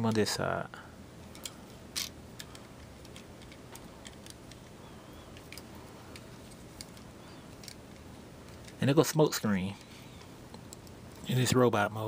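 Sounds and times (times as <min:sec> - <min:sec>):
plastic toy parts clicking: 0:06.8 - 0:08.8.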